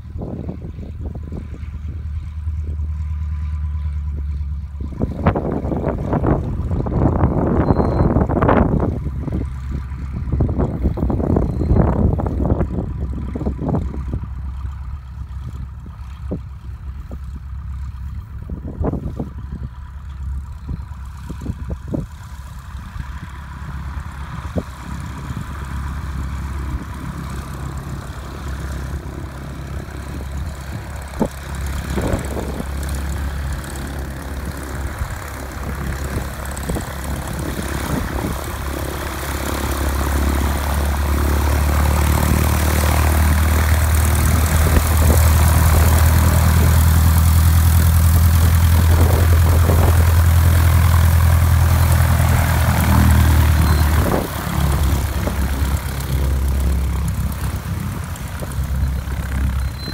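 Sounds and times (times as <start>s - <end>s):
wind buffeting microphone: 0.0s - 2.9s, 4.1s - 19.8s, 20.5s - 59.9s
propeller plane engine droning: 0.0s - 59.9s.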